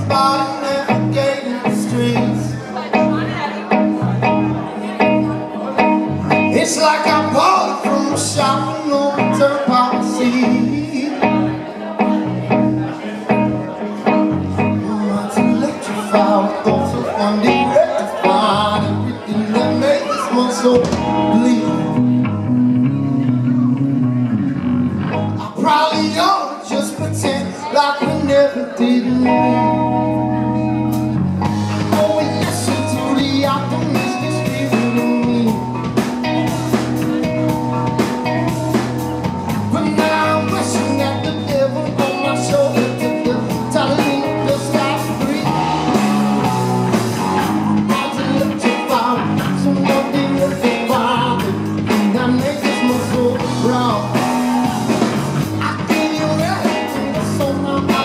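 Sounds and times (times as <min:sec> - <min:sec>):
man singing: 0:00.0 - 0:03.4, 0:04.2 - 0:24.4, 0:25.2 - 0:30.9, 0:31.7 - 0:58.0
electric bass: 0:00.0 - 0:58.0
electric guitar: 0:00.0 - 0:58.0
drum kit beat: 0:20.8 - 0:21.7, 0:30.8 - 0:58.0.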